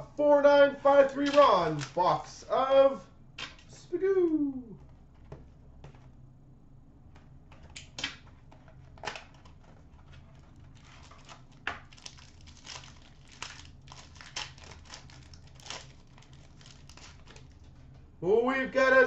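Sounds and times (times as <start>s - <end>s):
low hum: 1.8s - 18.8s
card pack wrapper crinkling: 9.0s - 17.9s.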